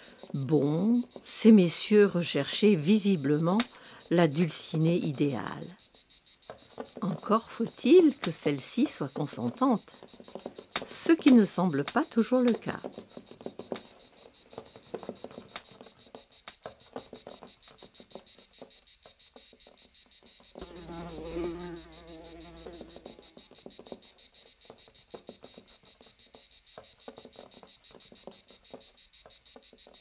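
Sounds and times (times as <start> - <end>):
insects trilling: 0.0 - 30.0
flying insect buzzing past: 20.6 - 24.3.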